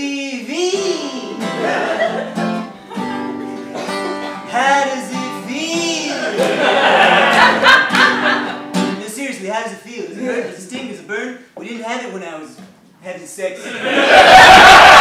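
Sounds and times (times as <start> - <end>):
man singing: 0.0 - 2.3, 4.4 - 6.4
acoustic guitar strumming: 0.5 - 9.2.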